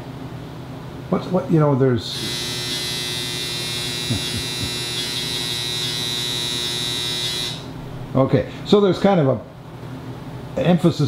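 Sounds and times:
high-pitched electric buzz: 0:02.1 - 0:08.1.

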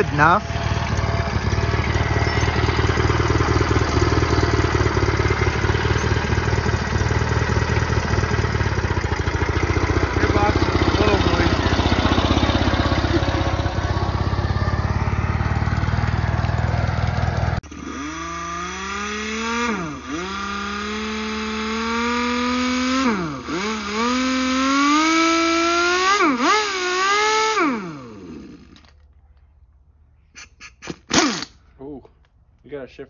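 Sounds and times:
engine chugging: 0:00.0 - 0:29.1
motor whine: 0:10.0 - 0:29.0.

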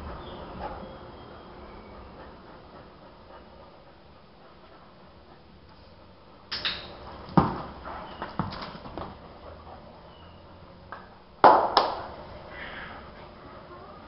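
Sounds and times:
dog moving on tiled floor: 0:06.5 - 0:09.8.

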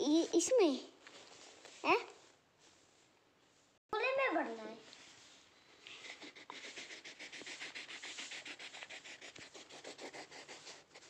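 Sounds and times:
crayon scribbling on paper: 0:05.9 - 0:11.0.

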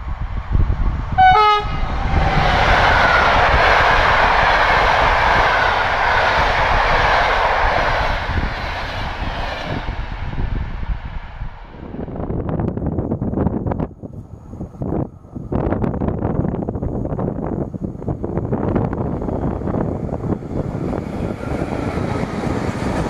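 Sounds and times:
train wheels rushing on rails: 0:00.0 - 0:23.0
train horn blast: 0:01.2 - 0:01.9.

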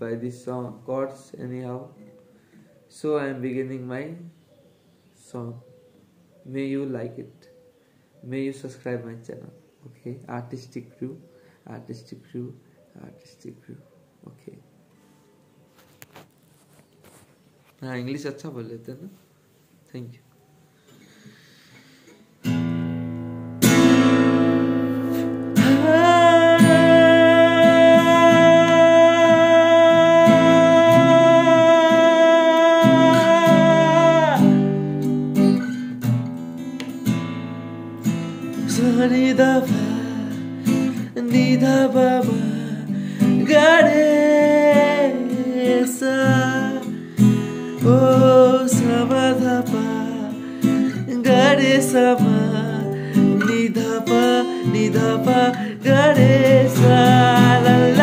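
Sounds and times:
acoustic guitar strumming: 0:21.8 - 0:58.0
man singing: 0:25.5 - 0:34.9, 0:38.6 - 0:58.0.

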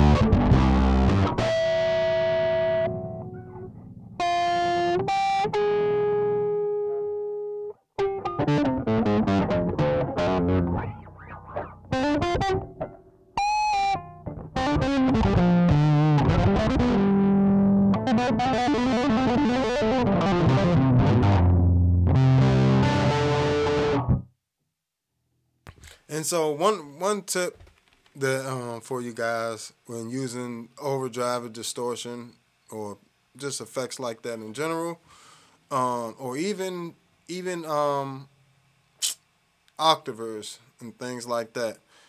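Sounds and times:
distorted electric bass: 0:00.0 - 0:05.0, 0:08.4 - 0:24.3.

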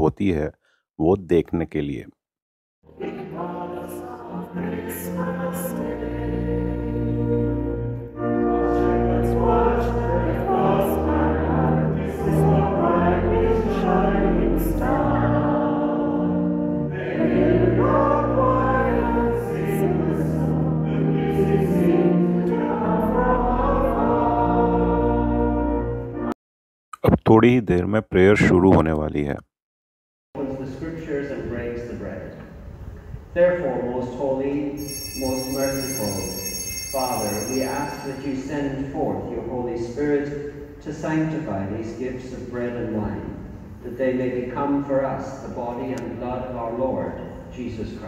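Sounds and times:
choir singing held chords: 0:02.9 - 0:26.3, 0:34.8 - 0:39.2.

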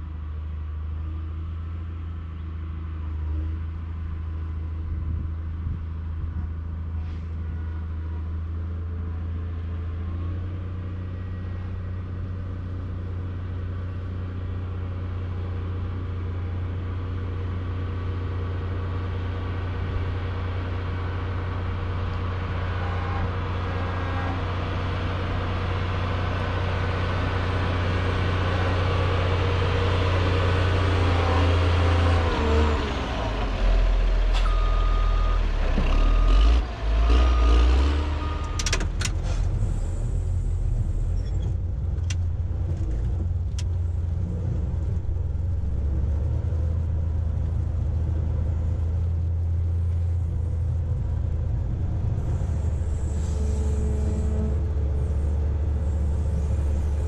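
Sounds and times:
diesel engine running: 0:00.0 - 0:57.0
short beeps: 0:34.4 - 0:38.7.

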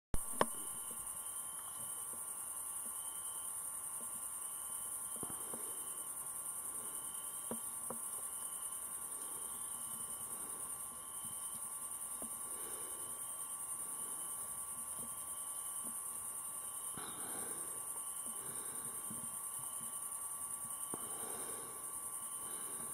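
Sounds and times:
faint repeating chirp: 0:00.2 - 0:06.2, 0:06.8 - 0:22.9
crickets chirring: 0:00.2 - 0:22.9
faint clicks: 0:00.3 - 0:01.0.

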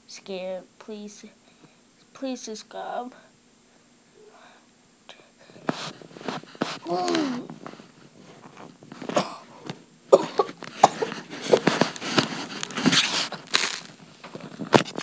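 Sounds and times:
boy coughing and gasping: 0:06.8 - 0:07.5, 0:09.1 - 0:11.8.

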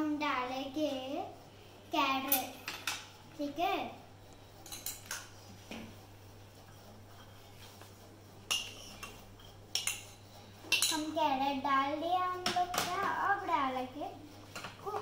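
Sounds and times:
utensils clinking against dishes: 0:02.2 - 0:03.1, 0:04.6 - 0:05.3, 0:08.5 - 0:11.1.

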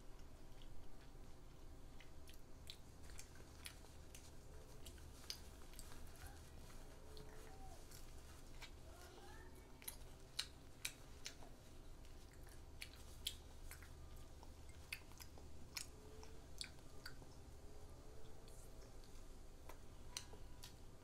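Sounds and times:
child chewing crispy food: 0:00.0 - 0:21.0
mouth clicks and crunches: 0:00.1 - 0:08.9, 0:09.6 - 0:17.5.

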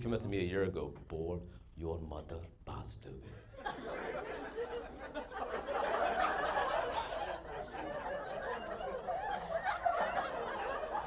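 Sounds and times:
audience laughing: 0:03.3 - 0:11.0.

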